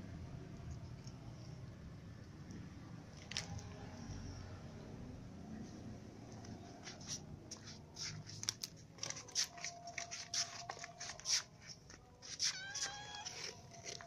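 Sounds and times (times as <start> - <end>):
cats crunching crackers: 2.5 - 4.0, 6.4 - 14.0
cat mewing: 12.2 - 13.7.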